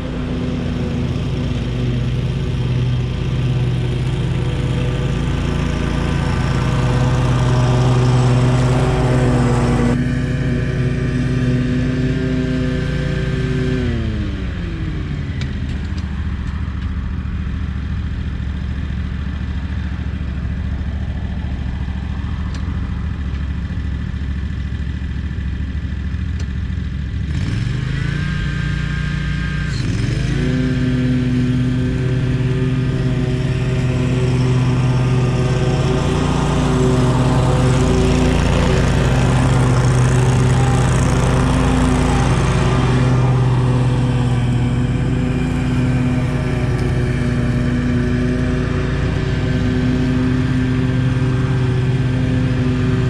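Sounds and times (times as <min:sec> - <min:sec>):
lawn mower engine running: 0:00.0 - 0:53.0.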